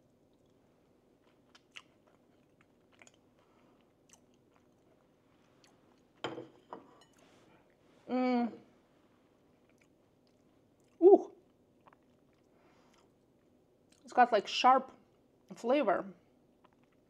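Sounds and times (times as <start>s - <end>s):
person chewing: 1.2s - 6.2s, 9.6s - 14.0s, 16.6s - 17.0s
person humming: 8.1s - 8.6s, 11.0s - 11.3s.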